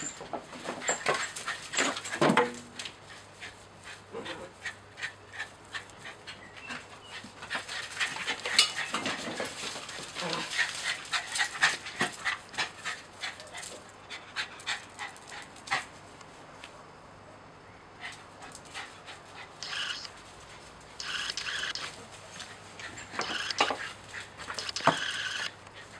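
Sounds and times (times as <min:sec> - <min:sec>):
small dog panting: 0:03.0 - 0:15.9, 0:18.0 - 0:25.9
short high-pitched calls: 0:19.6 - 0:20.1.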